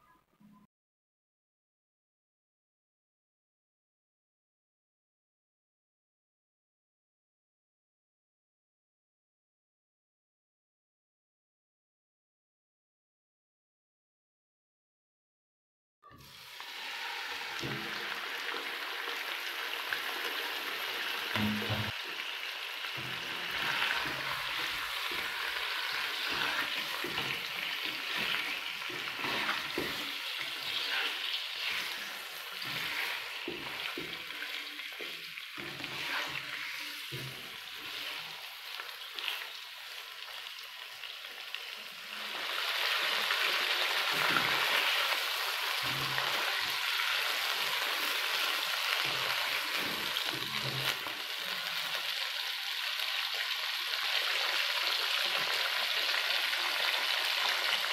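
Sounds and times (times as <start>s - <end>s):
meat sizzling in hot oil: 16.2s - 57.9s
spatula scraping a pan: 22.8s - 39.6s, 44.0s - 51.9s.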